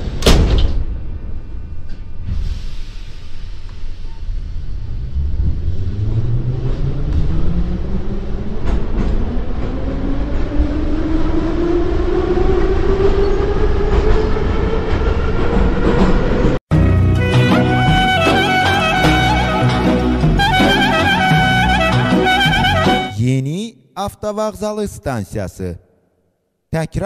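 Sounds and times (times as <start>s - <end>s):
train motor whine: 17.2s - 23.1s.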